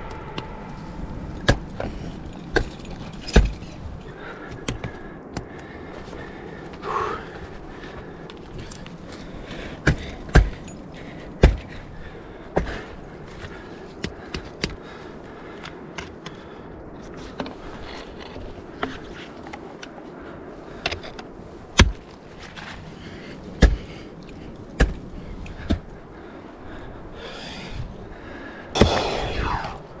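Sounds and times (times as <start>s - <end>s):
ice axe striking ice: 1.4s - 3.8s, 9.8s - 10.8s, 23.6s - 24.0s, 24.8s - 25.8s.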